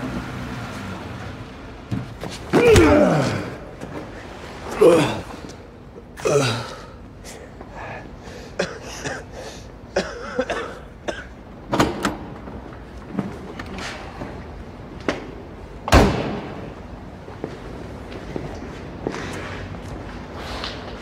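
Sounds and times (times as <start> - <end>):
man groaning in pain: 2.5 - 3.8, 4.7 - 5.5, 6.2 - 7.0
man coughing: 6.2 - 7.4, 8.4 - 11.4.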